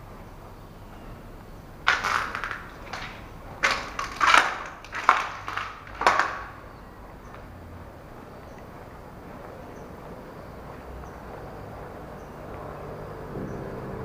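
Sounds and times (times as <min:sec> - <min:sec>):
footsteps crunching over debris: 0:01.8 - 0:12.6.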